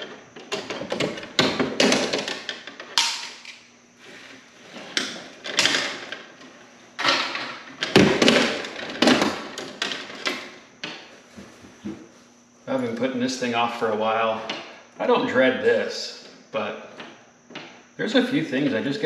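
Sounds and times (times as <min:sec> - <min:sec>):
sharp clicks and clatters of wires: 0:00.0 - 0:03.6, 0:04.9 - 0:11.1.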